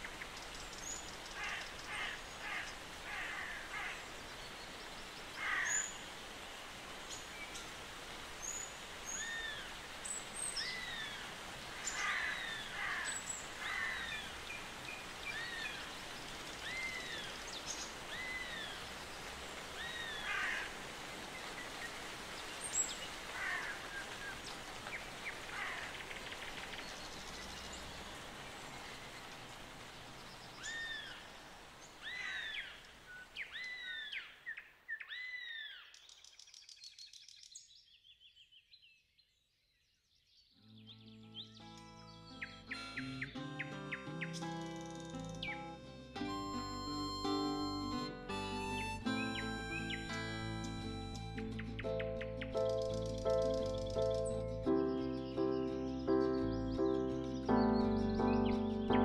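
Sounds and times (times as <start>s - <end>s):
steady outdoor hiss: 0.0s - 37.7s, 40.6s - 59.0s
crow-like bird calls: 1.3s - 4.1s, 5.4s - 6.0s, 11.9s - 14.3s, 19.8s - 20.8s, 23.3s - 24.1s, 25.5s - 26.1s, 32.0s - 32.7s
whistled bird notes: 40.6s - 57.0s.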